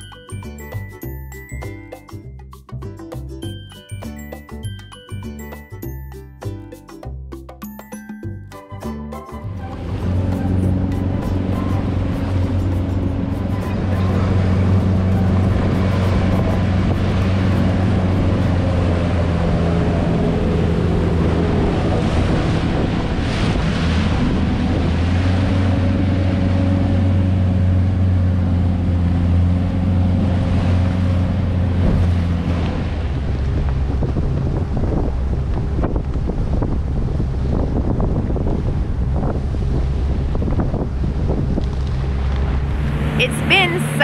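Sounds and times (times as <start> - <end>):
outboard motor running: 8.0 - 44.0
hull slapping through water: 9.6 - 44.0
wind buffeting microphone: 9.6 - 44.0.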